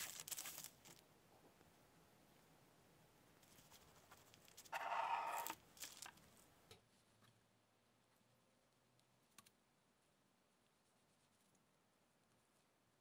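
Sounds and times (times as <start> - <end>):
crust crackling: 0.0 - 1.1, 3.4 - 6.5.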